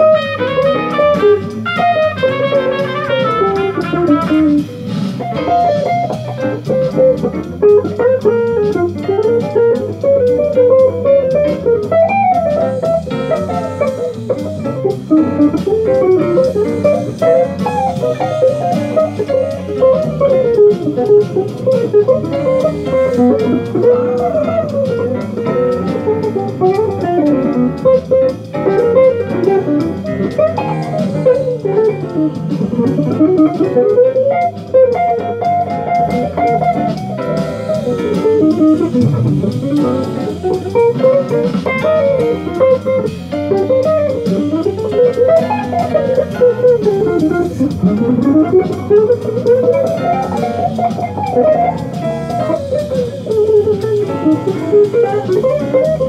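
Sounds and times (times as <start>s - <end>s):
electric guitar jazz lines: 0.0s - 56.0s.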